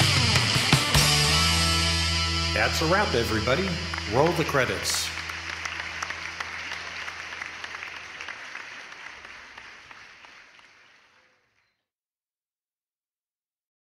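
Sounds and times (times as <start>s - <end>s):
audience applauding: 2.6s - 11.8s.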